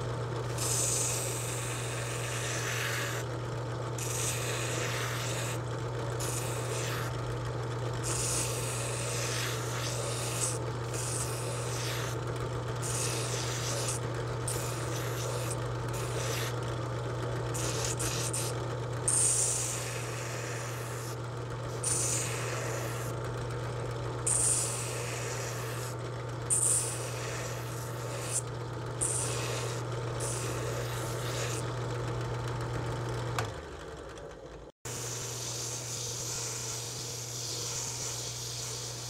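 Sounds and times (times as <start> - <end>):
sanding drum motor hum: 0.0 - 33.6, 34.9 - 39.0
wood sanding hiss: 0.5 - 3.2, 4.0 - 5.6, 6.2 - 7.1, 8.0 - 12.2, 12.8 - 16.5, 21.8 - 23.1, 24.3 - 25.9, 29.0 - 31.6, 34.9 - 39.0.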